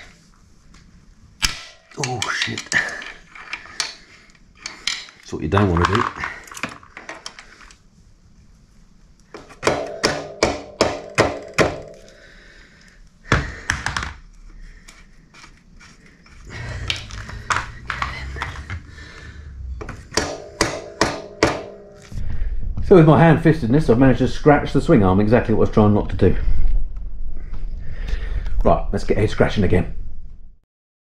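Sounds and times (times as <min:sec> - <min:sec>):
mallet knocking on metal bolt: 0:20.1 - 0:21.8.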